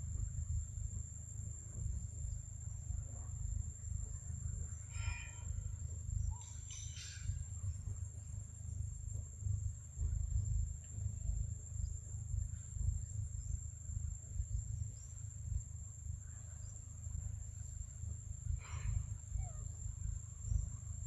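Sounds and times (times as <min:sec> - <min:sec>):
animal calls: 0:18.7 - 0:19.8.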